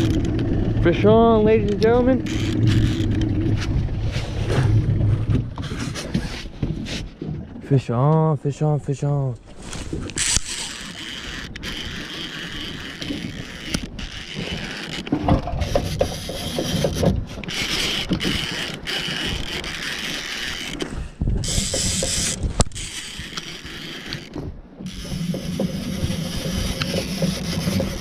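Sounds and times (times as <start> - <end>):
fishing reel whirring and clicking: 0.0 - 3.5, 10.0 - 28.0
knocks and rustling of rod handling: 12.7 - 28.0.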